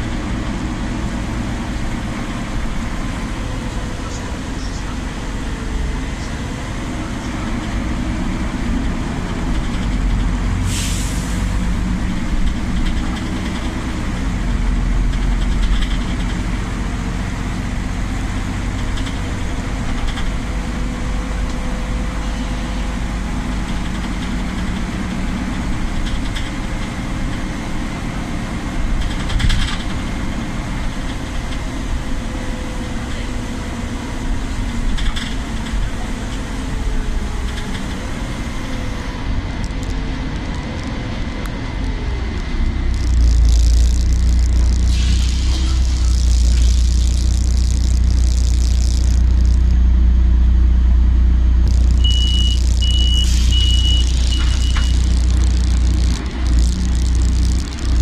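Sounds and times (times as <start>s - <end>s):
bus engine drone: 0.0s - 58.0s
compressed air hiss: 10.6s - 11.5s, 44.8s - 46.1s, 53.1s - 53.6s
faint whine: 42.9s - 49.8s, 51.6s - 58.0s.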